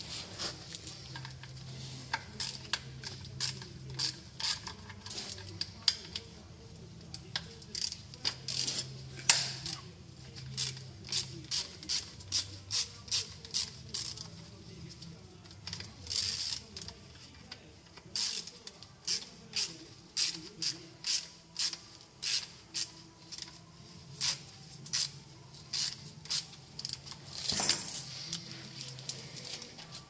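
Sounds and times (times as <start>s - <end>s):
ratchet wrench clicking: 2.1s - 4.9s, 7.3s - 9.5s, 10.6s - 14.3s, 15.6s - 16.9s, 18.2s - 23.6s, 24.2s - 27.2s.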